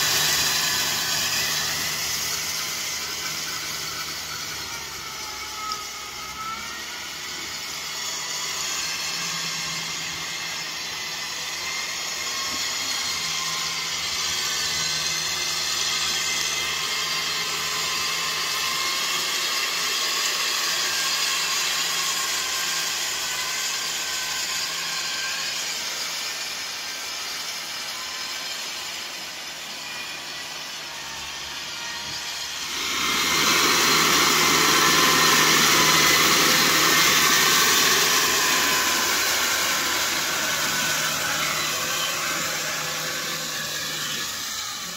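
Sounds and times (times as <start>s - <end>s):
rotary tiller churning mud: 32.7s - 44.9s.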